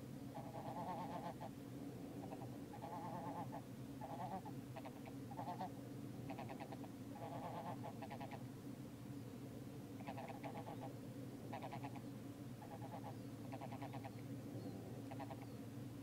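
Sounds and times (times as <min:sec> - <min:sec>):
goose honking: 0:00.4 - 0:01.5, 0:02.2 - 0:05.7, 0:06.3 - 0:08.4, 0:10.0 - 0:10.9, 0:11.5 - 0:12.0, 0:12.6 - 0:14.1, 0:15.1 - 0:15.4.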